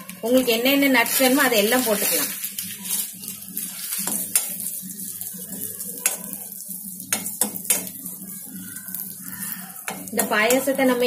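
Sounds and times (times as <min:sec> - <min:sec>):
light frying sizzle: 0:00.0 - 0:11.0.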